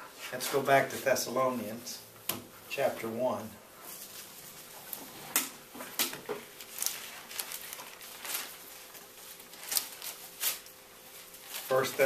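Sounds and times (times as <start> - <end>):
thin pages turning: 5.8 - 12.0.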